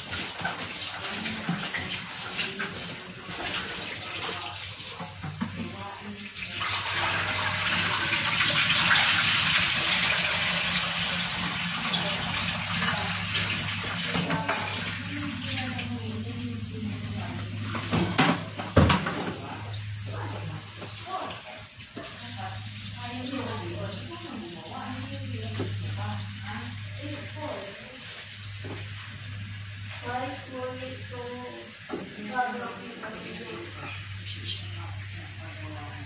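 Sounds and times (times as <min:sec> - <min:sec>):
tap water splashing into sink: 0:00.0 - 0:16.0, 0:17.6 - 0:24.1, 0:25.4 - 0:26.8, 0:31.7 - 0:32.4.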